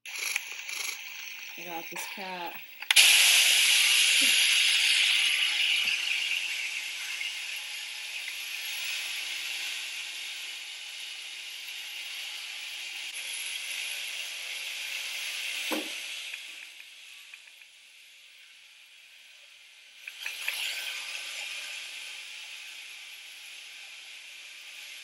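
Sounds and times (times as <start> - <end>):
robot vacuum whirring: 0.1 - 10.6, 20.0 - 25.0.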